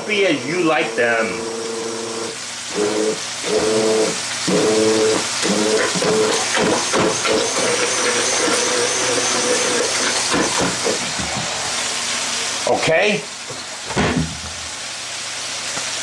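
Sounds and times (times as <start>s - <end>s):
thin high whine: 0.0s - 6.3s
immersion blender mashing potatoes: 0.0s - 11.6s.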